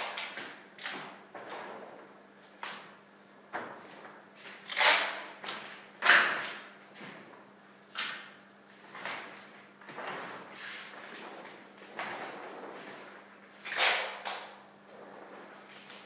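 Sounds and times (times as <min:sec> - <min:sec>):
paper sheets rustling and swishing: 0:08.7 - 0:16.0.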